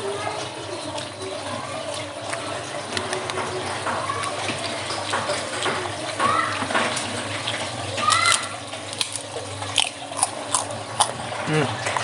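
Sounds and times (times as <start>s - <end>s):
wet slurping from shells: 8.2s - 11.2s.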